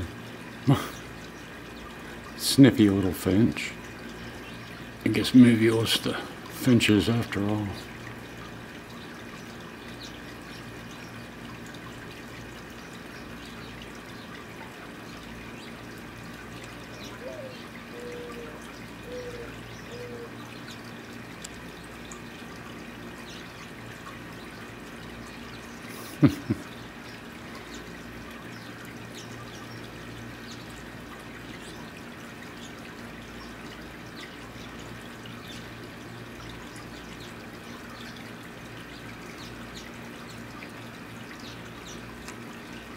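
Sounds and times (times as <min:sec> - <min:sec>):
water trickling: 0:00.0 - 0:42.9
dove cooing: 0:17.0 - 0:20.5.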